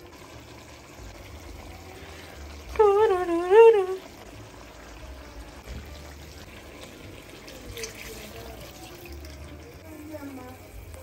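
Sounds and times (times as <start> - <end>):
liquid pouring into a metal pot: 4.2 - 9.8.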